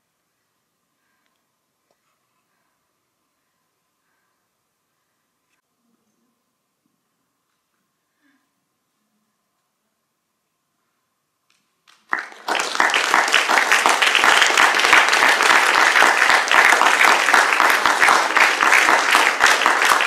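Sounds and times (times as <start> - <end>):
audience applause: 11.9 - 20.0.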